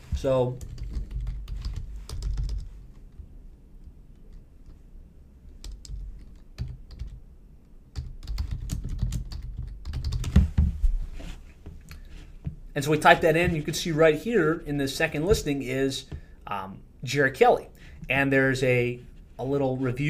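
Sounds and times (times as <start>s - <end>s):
typing on computer keyboard: 0.6s - 2.7s, 5.6s - 7.2s, 7.9s - 10.4s.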